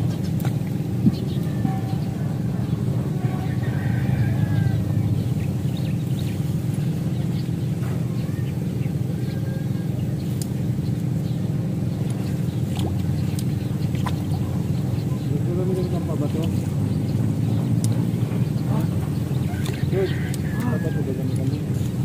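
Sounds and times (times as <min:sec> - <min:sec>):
low motor hum: 0:00.0 - 0:22.0.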